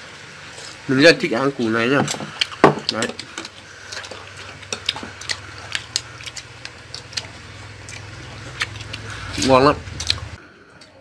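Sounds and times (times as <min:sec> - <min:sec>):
person chewing: 0:02.2 - 0:11.0.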